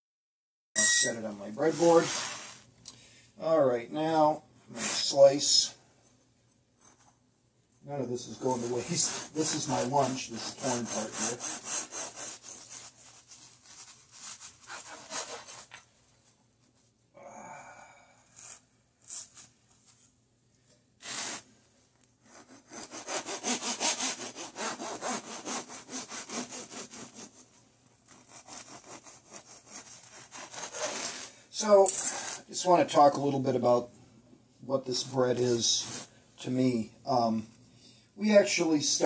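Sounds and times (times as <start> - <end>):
bread knife sawing crusty bread: 8.4 - 15.8, 22.3 - 31.4.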